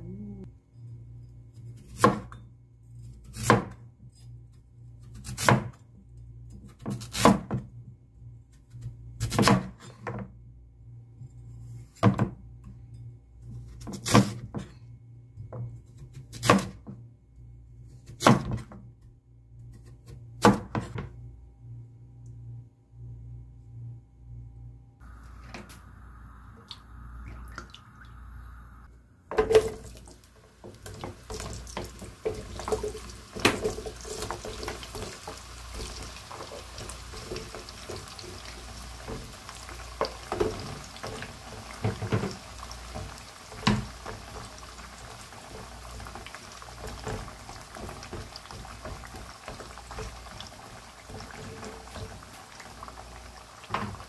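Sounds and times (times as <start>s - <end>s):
food frying in hot oil: 29.8s - 54.0s
wooden spatula scraping pot: 30.6s - 44.6s, 51.0s - 52.3s.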